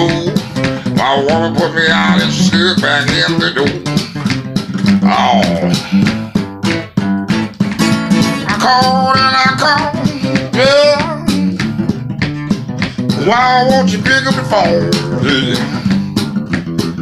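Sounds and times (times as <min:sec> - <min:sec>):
man singing: 0:00.0 - 0:04.1, 0:05.0 - 0:06.1, 0:08.4 - 0:11.6, 0:12.9 - 0:16.0
blues acoustic guitar: 0:00.0 - 0:17.0.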